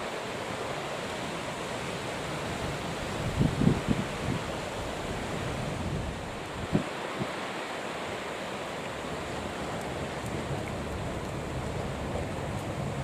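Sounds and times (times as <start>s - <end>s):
choppy sea: 0.0s - 13.0s
wind buffeting microphone: 3.0s - 7.4s.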